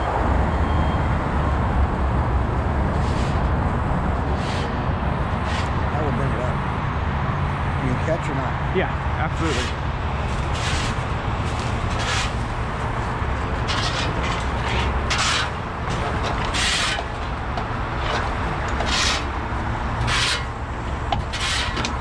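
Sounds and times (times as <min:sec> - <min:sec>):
truck body scraping: 0:02.9 - 0:03.5, 0:04.3 - 0:04.8, 0:05.4 - 0:05.9, 0:09.4 - 0:22.0.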